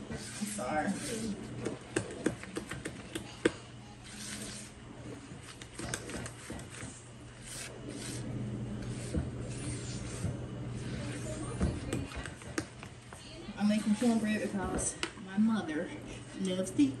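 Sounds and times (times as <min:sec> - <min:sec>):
spatula scraping plastic bowl: 0:00.0 - 0:03.1, 0:04.0 - 0:12.7.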